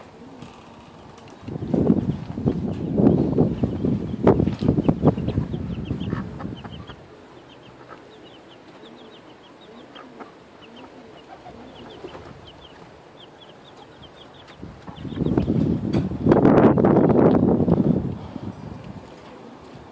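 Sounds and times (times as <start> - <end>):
chicks peeping: 0.2 - 19.0
hen clucking softly: 4.9 - 15.7.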